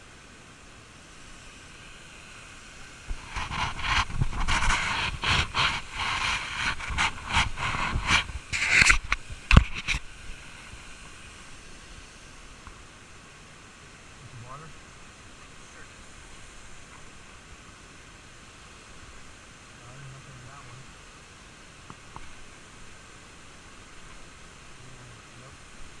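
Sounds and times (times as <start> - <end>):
faint steady hiss: 0.0 - 26.0
hand rubbing and knocking camera: 3.1 - 10.1.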